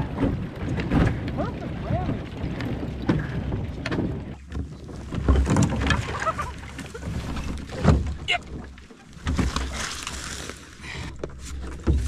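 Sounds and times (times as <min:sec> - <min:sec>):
wind rumble on microphone: 0:00.0 - 0:08.4
ice knocking and scraping on hull: 0:00.0 - 0:12.0.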